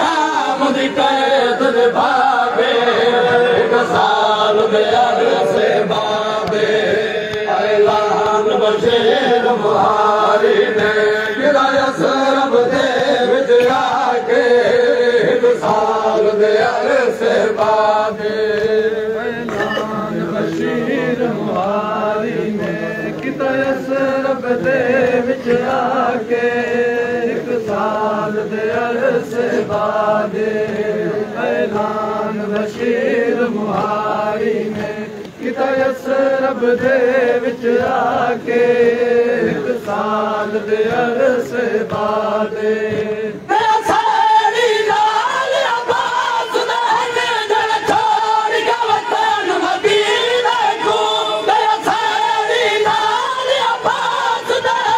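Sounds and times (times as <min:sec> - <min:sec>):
men chanting a lament: 0:00.0 - 0:54.9.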